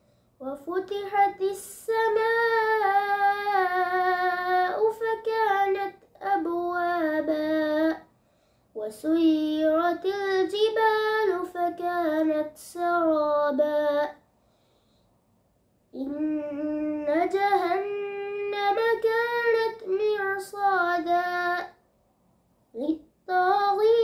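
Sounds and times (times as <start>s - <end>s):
boy chanting recitation: 0.4s - 8.0s, 16.0s - 21.8s.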